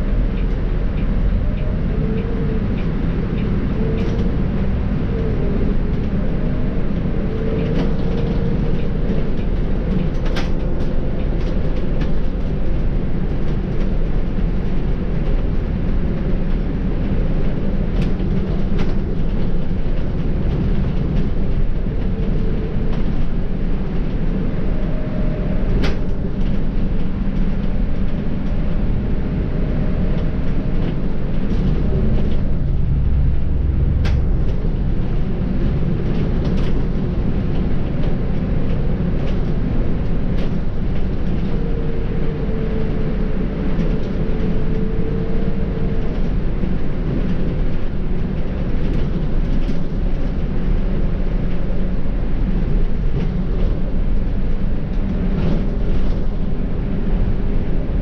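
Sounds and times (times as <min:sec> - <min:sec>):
bus diesel engine: 0:00.0 - 0:58.0
road noise: 0:00.0 - 0:58.0
faint whine: 0:22.0 - 0:36.6.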